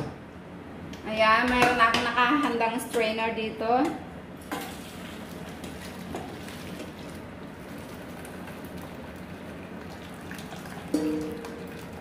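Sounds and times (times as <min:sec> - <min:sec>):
water pouring through a strainer: 0:04.8 - 0:12.0.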